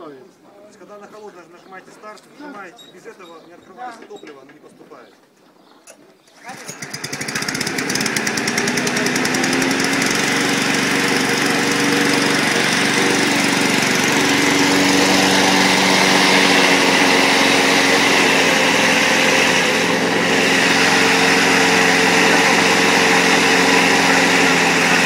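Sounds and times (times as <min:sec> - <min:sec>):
lawn mower engine running: 0:06.3 - 0:25.0.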